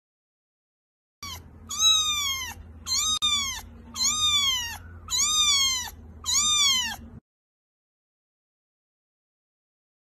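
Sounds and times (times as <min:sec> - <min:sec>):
kitten mewing: 0:01.2 - 0:07.2.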